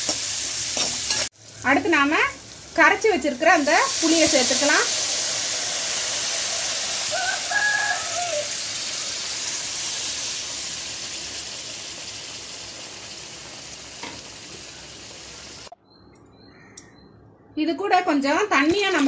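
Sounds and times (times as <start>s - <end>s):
liquid sizzling in hot pan: 0.0s - 15.7s
rooster crowing: 7.0s - 8.9s.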